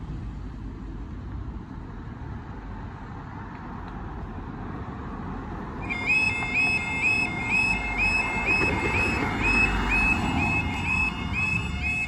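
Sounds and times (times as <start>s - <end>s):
cars passing on street: 0.0s - 12.0s
level crossing warning alarm: 5.8s - 12.0s.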